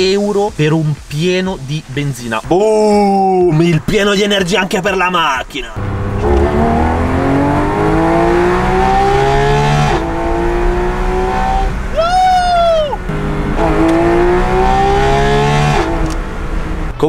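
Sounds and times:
car engine accelerating hard: 5.8s - 17.0s
high-pitched wail: 11.9s - 13.7s.

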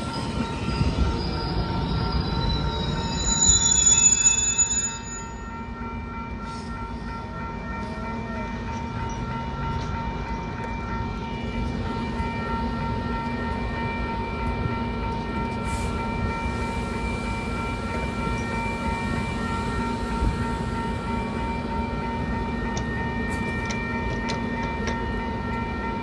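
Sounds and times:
high-pitched whine: 0.0s - 5.7s
train coaches rumbling: 0.0s - 26.0s.

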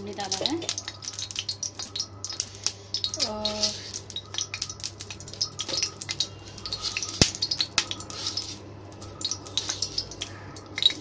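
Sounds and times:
ghee crackling in a pan: 0.0s - 11.0s.

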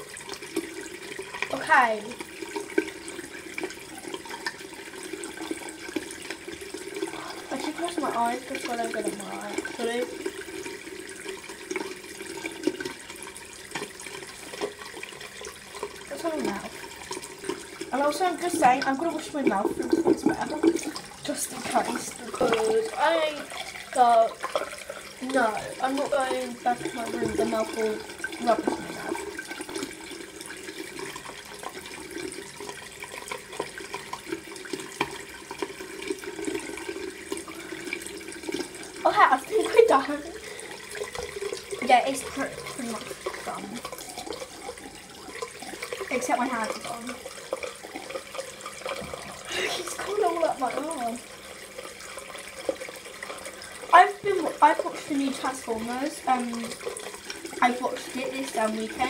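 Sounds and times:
tap running into sink: 13.7s - 38.7s, 39.5s - 51.1s.

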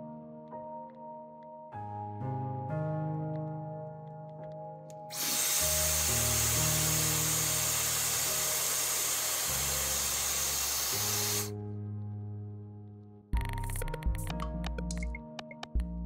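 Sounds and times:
background music: 0.0s - 16.0s
hair dryer blowing: 5.1s - 11.5s.

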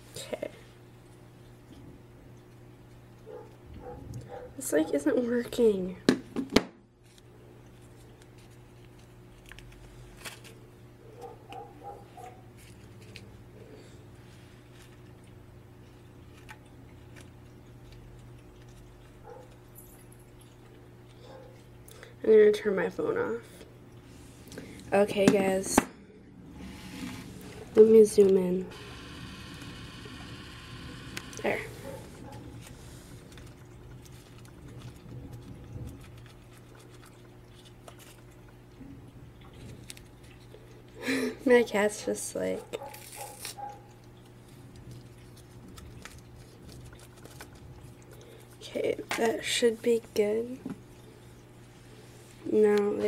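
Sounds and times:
steady low hum: 0.0s - 42.9s
paper packet rustling: 7.0s - 10.6s, 42.8s - 43.8s, 44.8s - 48.1s.

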